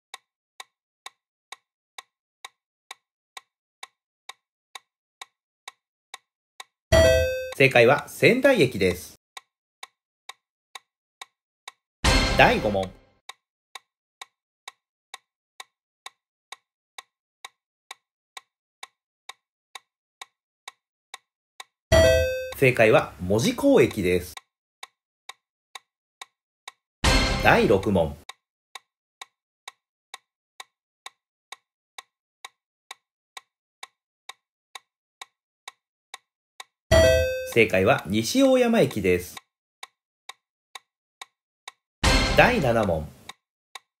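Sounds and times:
clock-like ticking: 0.1 - 8.6, 9.4 - 43.9
countdown timer ticking: 6.6 - 8.2, 12.0 - 13.0, 21.9 - 24.4, 27.0 - 28.3, 36.6 - 39.4, 42.0 - 43.4.

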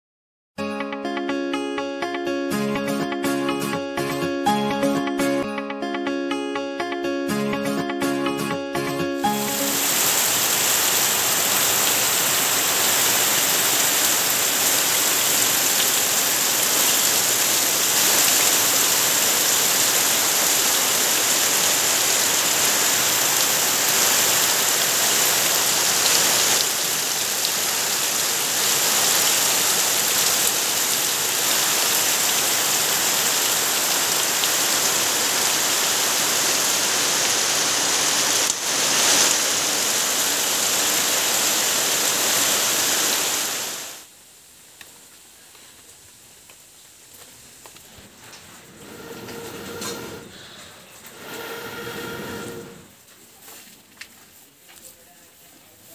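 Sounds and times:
heavy rain on foliage: 9.3 - 50.2.

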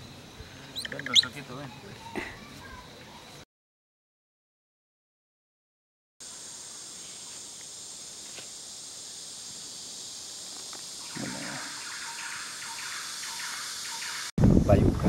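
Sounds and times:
high-pitched insect drone: 6.2 - 14.3.

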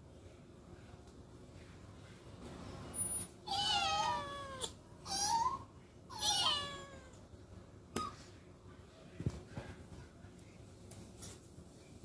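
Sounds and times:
cat meowing: 3.5 - 7.2.

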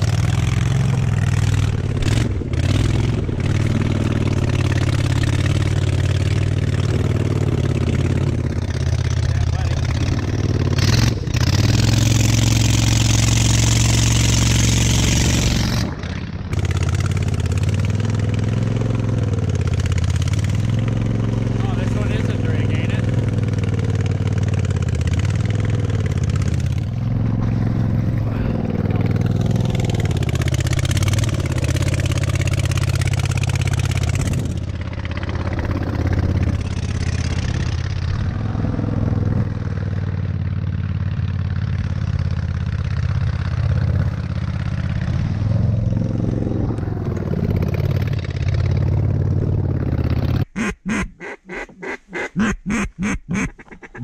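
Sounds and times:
boat motor running: 21.3 - 23.7
ducks quacking: 50.6 - 54.0.

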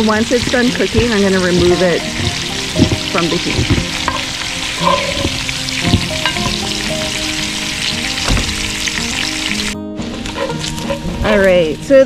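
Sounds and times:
meat sizzling in oil: 0.0 - 11.0
spatula scraping and knocking pot: 0.7 - 6.8, 10.2 - 11.4.

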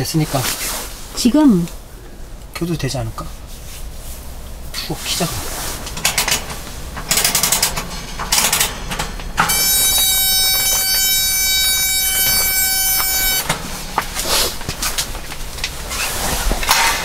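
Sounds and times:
heater igniter ratcheting clicks: 5.8 - 14.1
heater steady pitched buzz: 8.5 - 16.0.

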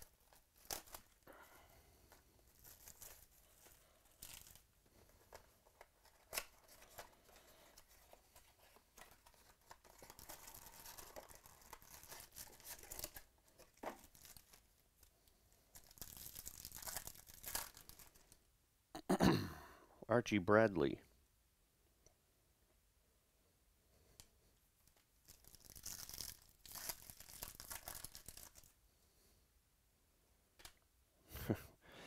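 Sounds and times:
plastic wrapper tearing and crinkling: 0.0 - 1.3, 1.9 - 18.4, 24.8 - 28.8.

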